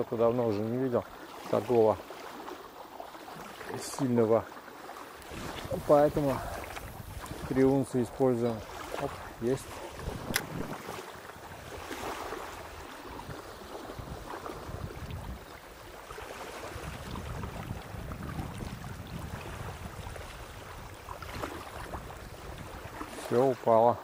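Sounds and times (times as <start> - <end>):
waves lapping at shore: 0.0 - 24.0
wind gusting on microphone: 5.2 - 15.9, 16.5 - 23.2.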